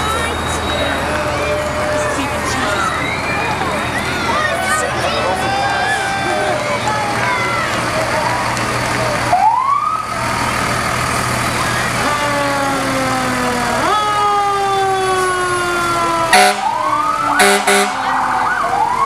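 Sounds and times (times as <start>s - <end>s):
fire engine siren: 0.0s - 19.0s
short loud horn blasts: 16.3s - 16.7s, 17.4s - 18.0s.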